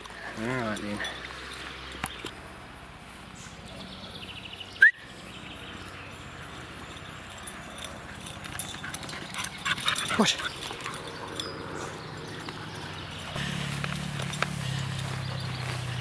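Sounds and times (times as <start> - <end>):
faint birdsong: 0.0 - 16.0.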